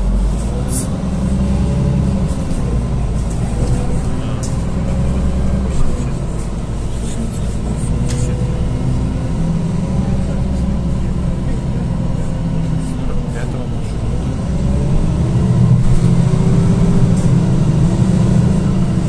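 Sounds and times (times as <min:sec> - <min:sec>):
bus engine drone: 0:00.0 - 0:19.0
road noise: 0:00.0 - 0:19.0
light clicks from bus body: 0:05.7 - 0:08.5.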